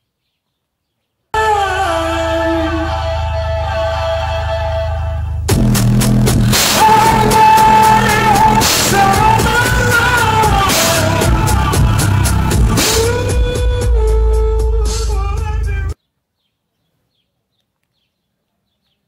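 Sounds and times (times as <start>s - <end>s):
heavy bass through car speakers: 1.4s - 16.0s
song with sung vocal: 1.4s - 16.0s
drums: 5.5s - 16.0s.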